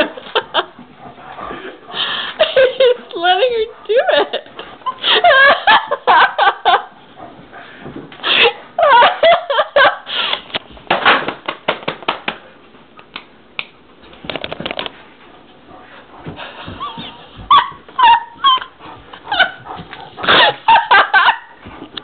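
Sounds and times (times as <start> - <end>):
person laughing: 2.4 - 6.9, 20.2 - 21.6.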